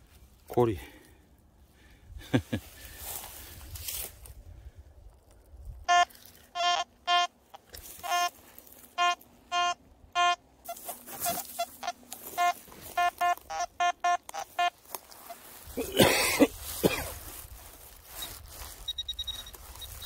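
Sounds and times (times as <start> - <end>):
metal detector beeps: 5.9 - 15.3, 18.1 - 20.0.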